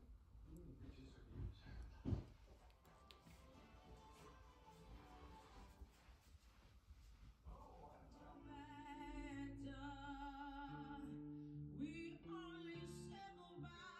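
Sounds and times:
accompanying music: 0:03.0 - 0:05.8
person singing long notes: 0:08.3 - 0:13.9.

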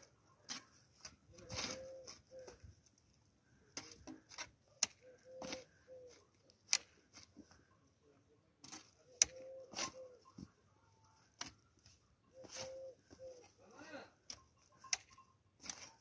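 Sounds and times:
shovel scraping soil: 0:00.0 - 0:02.6, 0:03.7 - 0:05.8, 0:08.6 - 0:10.2, 0:11.3 - 0:13.6, 0:14.2 - 0:16.0.

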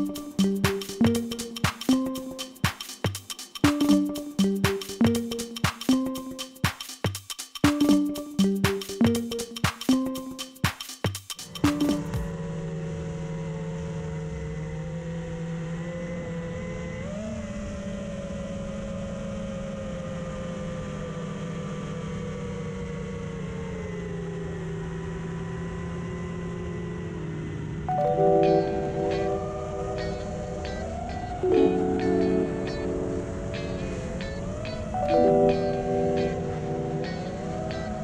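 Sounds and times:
model aircraft motor whine: 0:12.3 - 0:27.9.

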